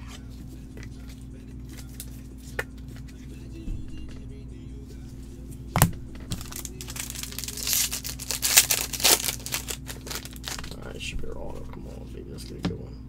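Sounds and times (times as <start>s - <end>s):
foil wrapper tearing and crinkling: 1.6s - 2.2s, 6.3s - 10.9s.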